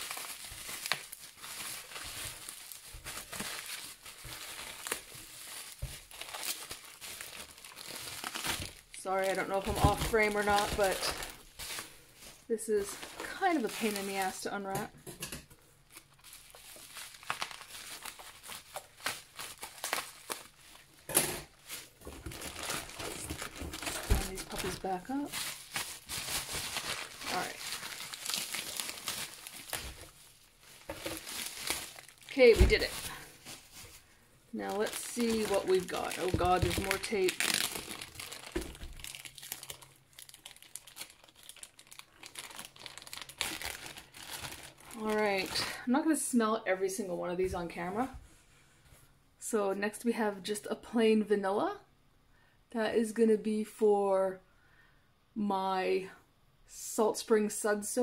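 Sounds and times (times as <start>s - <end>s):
plastic packaging crinkling: 0.0s - 14.9s, 15.8s - 45.8s.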